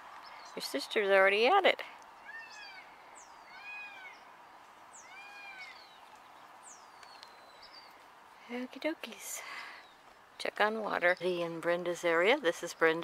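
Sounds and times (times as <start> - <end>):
high-pitched animal calls: 2.2 - 4.3, 4.9 - 5.9.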